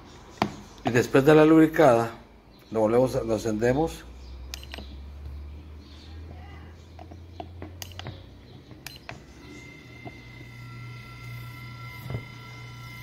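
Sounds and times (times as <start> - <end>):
electric fan motor humming: 4.3 - 13.0
push-button clicks: 4.5 - 4.9, 7.8 - 8.2
thin whine: 7.8 - 13.0.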